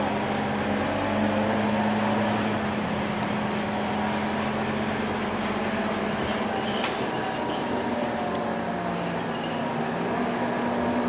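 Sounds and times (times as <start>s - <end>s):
bus engine and drivetrain hum: 0.0s - 11.0s
road noise: 0.0s - 11.0s.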